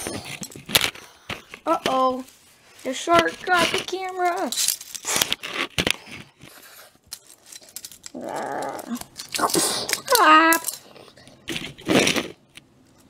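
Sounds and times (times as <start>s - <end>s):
child making vocal sound effects: 8.2s - 10.6s.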